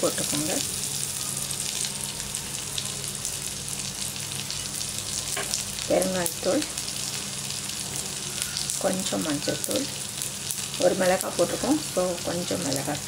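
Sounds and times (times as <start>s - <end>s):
oil sizzling in a pan: 0.0s - 13.0s.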